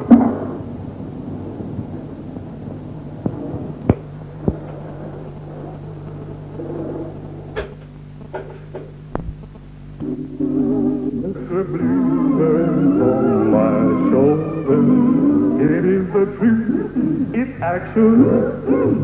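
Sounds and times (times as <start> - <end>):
low hum: 0.0 - 19.0
sharp clicks and knocks: 7.5 - 9.7
music: 10.0 - 16.7.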